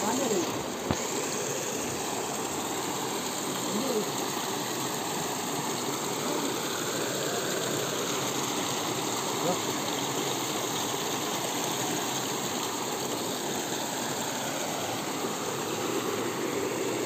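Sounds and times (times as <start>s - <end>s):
small waterfall rushing: 0.0s - 17.0s.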